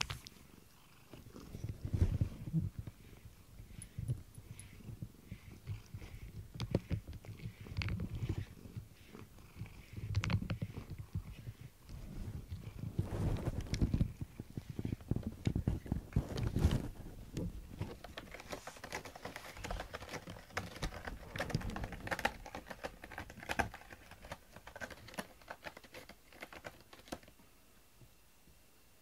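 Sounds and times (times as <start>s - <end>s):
cat scratching cardboard: 17.5s - 27.3s.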